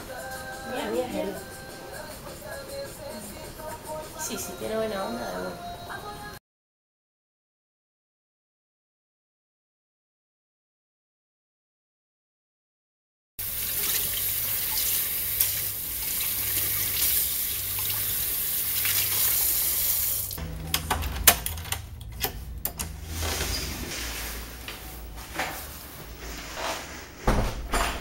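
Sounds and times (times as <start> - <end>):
keys jingling in a door lock: 20.6 - 23.0.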